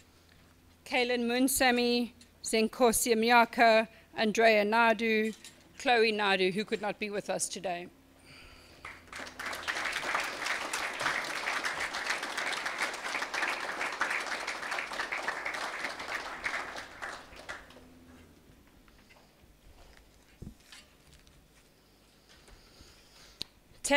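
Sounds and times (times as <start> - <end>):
audience applauding: 8.8 - 17.8.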